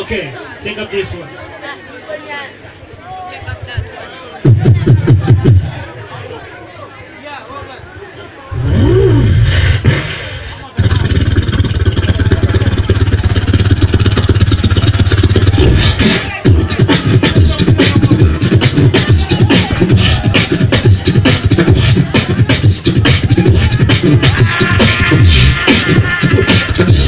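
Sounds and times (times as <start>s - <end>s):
beatboxing through a pa: 4.4s - 5.8s, 8.5s - 27.0s.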